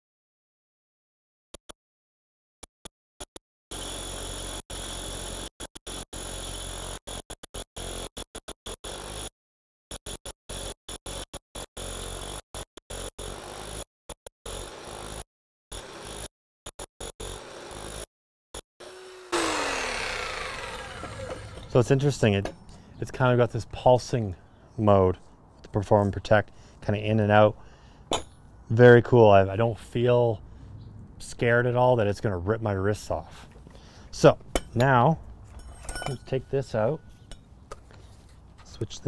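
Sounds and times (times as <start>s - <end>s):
rotary hammer drilling concrete: 3.7s - 9.3s, 9.9s - 18.1s, 18.8s - 22.2s.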